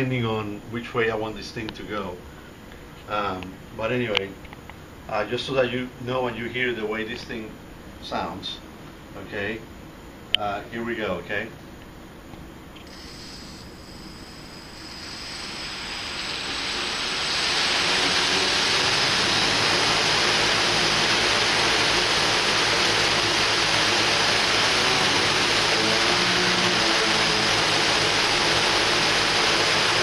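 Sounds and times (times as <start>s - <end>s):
drone propellers whirring: 12.8s - 30.0s.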